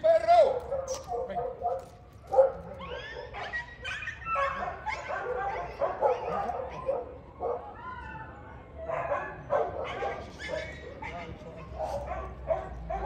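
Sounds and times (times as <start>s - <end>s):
dog barking and whining: 0.5s - 8.1s, 8.8s - 13.0s.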